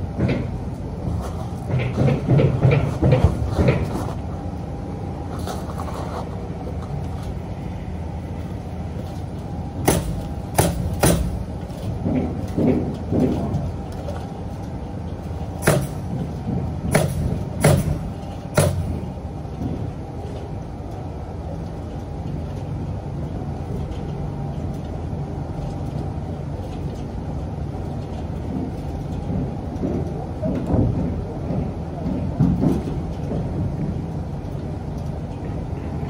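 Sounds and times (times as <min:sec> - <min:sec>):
building site rumble: 0:00.0 - 0:36.0
sharp bangs: 0:09.8 - 0:11.5, 0:15.6 - 0:19.0.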